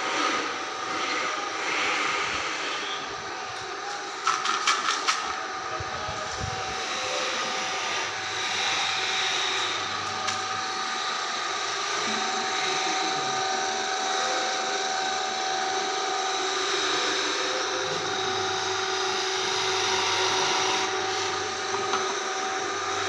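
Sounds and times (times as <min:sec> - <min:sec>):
electric motor humming: 0:00.0 - 0:04.4, 0:05.0 - 0:23.0
chisel cutting spinning wood: 0:05.3 - 0:23.0.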